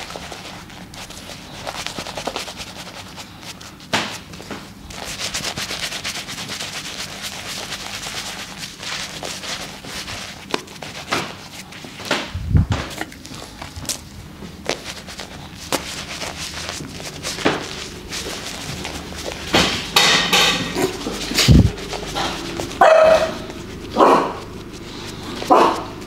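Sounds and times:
hand rubbing lather into beard: 0:00.0 - 0:03.9, 0:04.9 - 0:11.9, 0:13.4 - 0:26.0.

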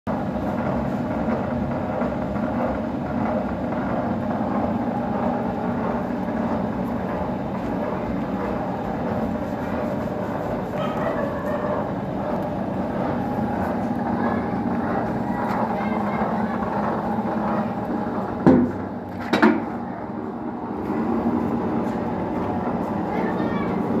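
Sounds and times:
lathe humming: 0:00.1 - 0:24.0.

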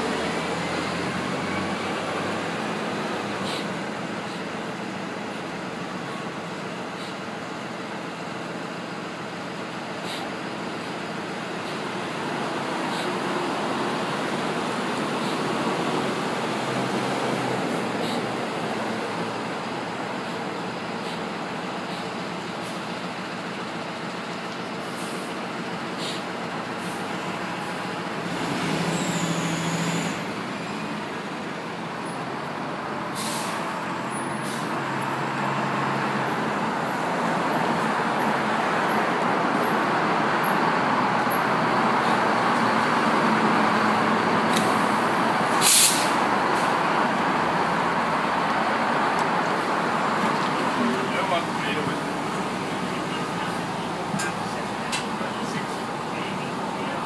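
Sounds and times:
diesel bus approaching: 0:00.0 - 0:57.0
street traffic: 0:00.0 - 0:57.0
air brake hiss: 0:26.0 - 0:26.2, 0:33.2 - 0:33.7, 0:34.4 - 0:34.8, 0:45.6 - 0:46.2.

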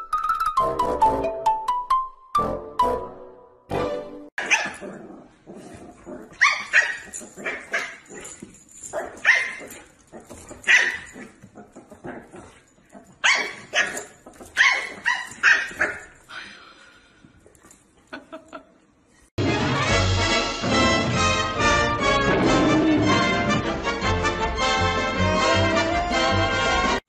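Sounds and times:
dog barking and yipping: 0:04.4 - 0:04.9, 0:06.3 - 0:16.2.

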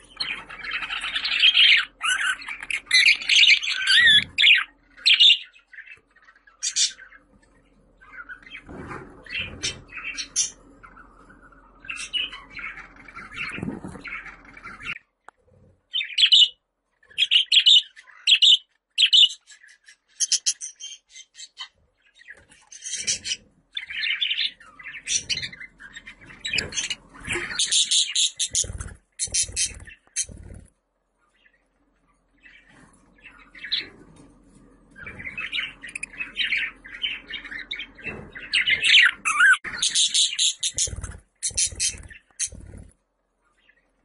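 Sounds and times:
budgerigar chirping: 0:00.2 - 0:05.5, 0:38.6 - 0:42.6.

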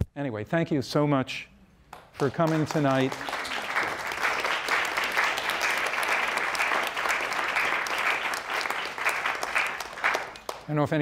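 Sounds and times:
audience applauding: 0:02.0 - 0:10.8.

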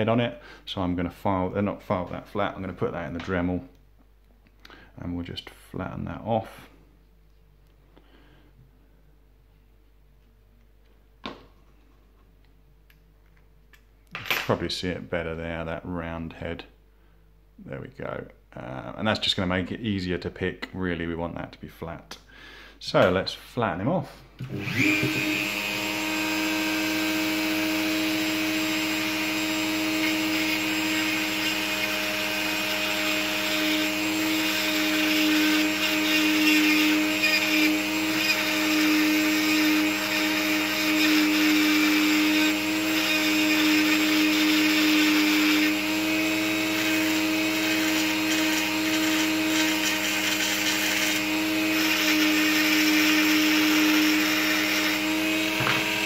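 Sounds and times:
rotary tool motor whine: 0:24.4 - 0:56.0.

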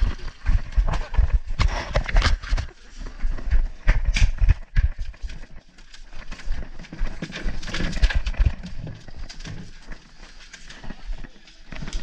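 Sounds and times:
footsteps: 0:00.0 - 0:12.0.

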